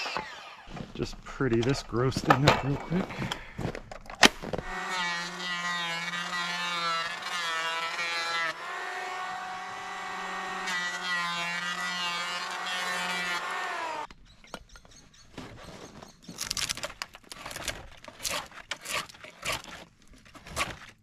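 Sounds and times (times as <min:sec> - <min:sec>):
electric planer whining: 0:00.0 - 0:00.7, 0:04.7 - 0:14.1.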